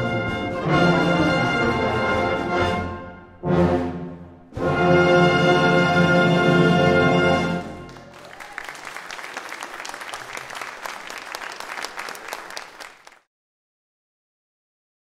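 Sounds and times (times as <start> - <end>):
brass band chord: 0.0 - 7.9
audience applause: 7.6 - 13.3.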